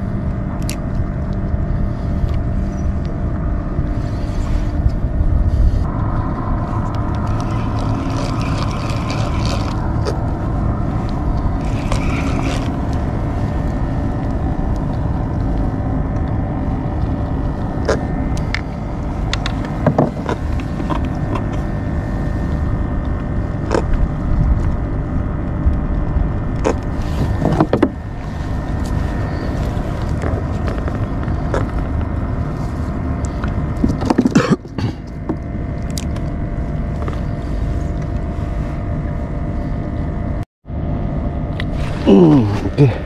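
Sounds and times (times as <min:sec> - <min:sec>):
wind on microphone: 0:00.0 - 0:34.1
water: 0:05.4 - 0:25.1.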